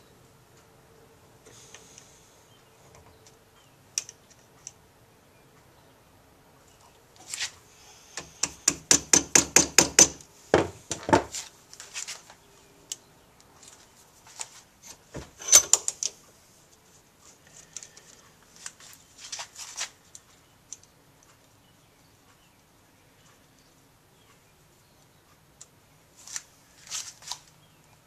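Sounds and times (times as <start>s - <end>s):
small hammer tapping on metal: 8.2s - 10.2s.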